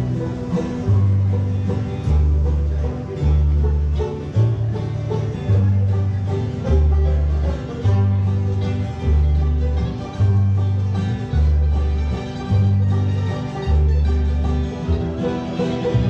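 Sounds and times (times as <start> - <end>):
banjo picking: 0.0 - 16.0
bass line: 0.0 - 16.0
guitar picking: 0.0 - 16.0.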